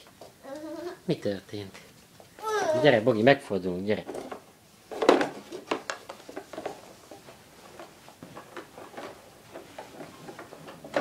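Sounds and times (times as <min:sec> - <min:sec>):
baby walker rattling on floor: 0:04.0 - 0:11.0.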